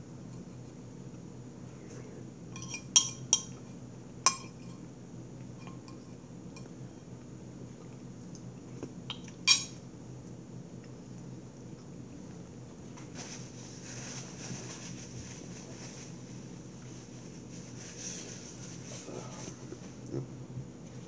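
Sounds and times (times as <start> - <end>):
metal spoon clinking on plate: 2.6 - 3.6.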